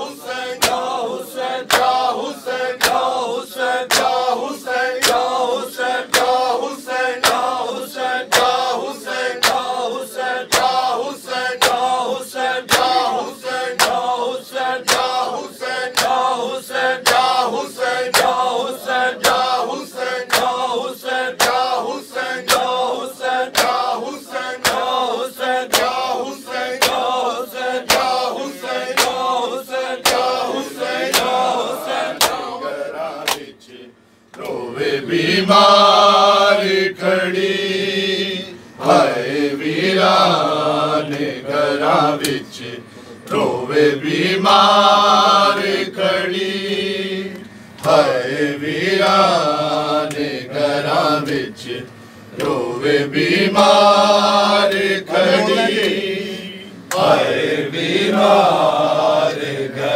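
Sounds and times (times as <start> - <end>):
men chanting together: 0.0 - 59.9
hands slapping chests: 1.7 - 2.0, 3.9 - 4.2, 13.8 - 14.0, 14.9 - 15.2, 21.4 - 21.7, 27.9 - 28.2, 30.0 - 30.3, 32.2 - 32.5, 33.2 - 33.5.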